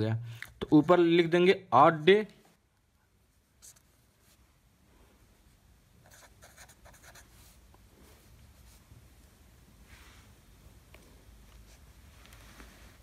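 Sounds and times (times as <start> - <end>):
marker pen writing on paper: 6.0 - 7.6.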